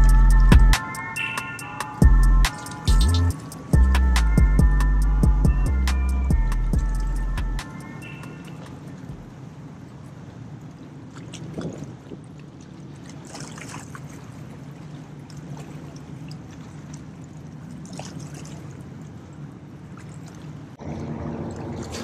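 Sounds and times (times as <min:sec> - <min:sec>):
louder tonal hum: 0:00.0 - 0:09.4, 0:20.8 - 0:22.0
boat motors humming: 0:00.0 - 0:22.0
small waves lapping on rocks: 0:11.1 - 0:19.2.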